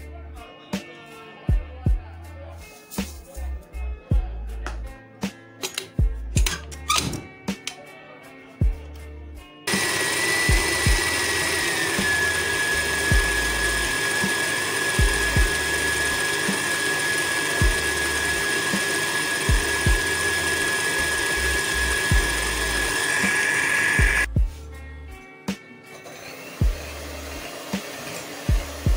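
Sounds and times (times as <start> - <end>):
stand mixer motor whine: 9.7 - 24.3, 26.1 - 28.9.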